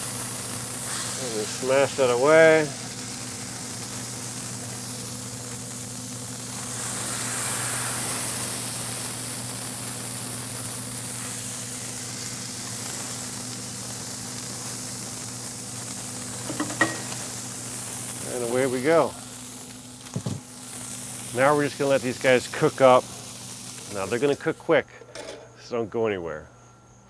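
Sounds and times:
patties sizzling on griddle: 0:00.0 - 0:25.6.

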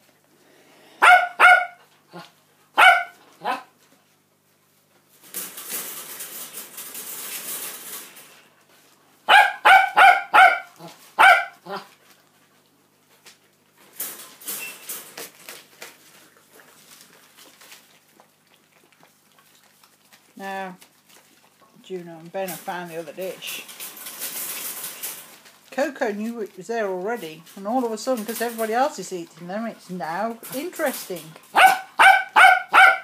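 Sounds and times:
dog barking: 0:01.0 - 0:01.8, 0:02.8 - 0:03.7, 0:09.3 - 0:11.9, 0:31.5 - 0:33.0
newspaper rustling and crinkling: 0:20.8 - 0:29.2.

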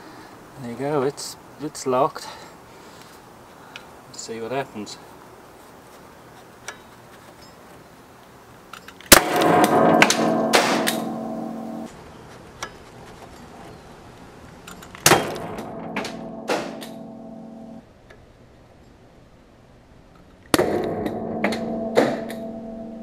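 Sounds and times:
nail gun bang: 0:09.1 - 0:11.9, 0:15.0 - 0:17.1, 0:20.5 - 0:22.4
metallic ringing: 0:09.2 - 0:11.9, 0:15.2 - 0:17.8, 0:20.9 - 0:23.0.

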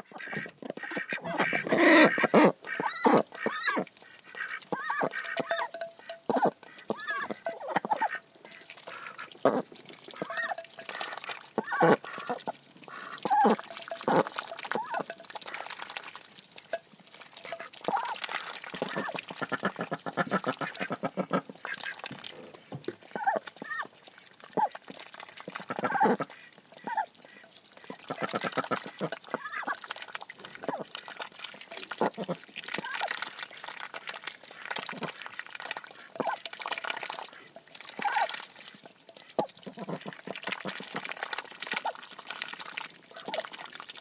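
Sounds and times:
ducks quacking: 0:00.0 - 0:15.6, 0:17.4 - 0:23.9, 0:25.5 - 0:29.8
ducks dabbling with bills: 0:00.0 - 0:44.0.

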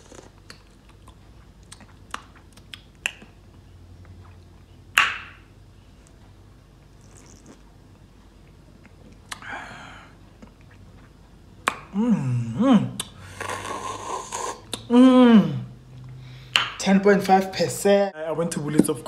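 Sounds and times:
breathy exhale: 0:09.4 - 0:10.2, 0:16.1 - 0:16.6
mouth smack: 0:11.6 - 0:12.0
person humming: 0:11.9 - 0:15.8.

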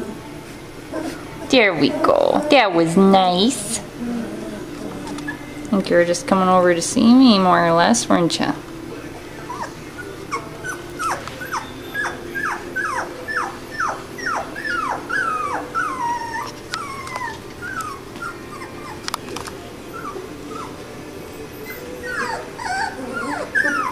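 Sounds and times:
puppies whimpering: 0:00.9 - 0:07.7, 0:09.0 - 0:23.9.

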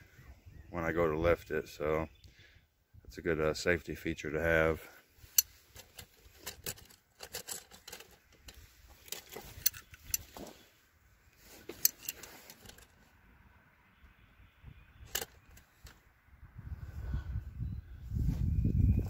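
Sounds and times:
metal tools clicking and clinking: 0:05.3 - 0:10.4, 0:11.7 - 0:12.9.

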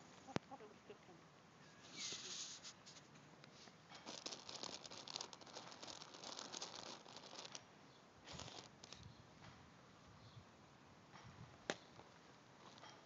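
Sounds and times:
hen pecking at grass: 0:01.9 - 0:07.6.

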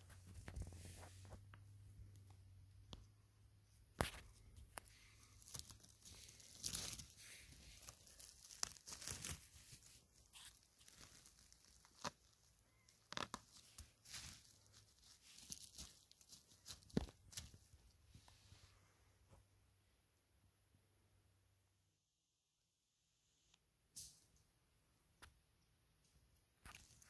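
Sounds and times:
twigs and needles crackling: 0:03.9 - 0:18.0, 0:26.6 - 0:27.0
mushroom tearing from ground: 0:04.9 - 0:09.9, 0:10.5 - 0:17.5.

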